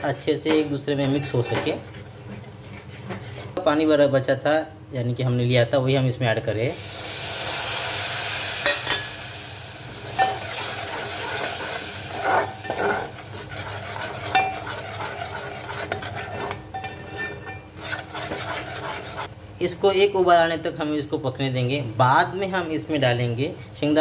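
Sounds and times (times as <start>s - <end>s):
ladle scraping and clinking in pot: 0.0s - 3.6s, 10.1s - 19.3s
masala sizzling: 6.6s - 19.3s.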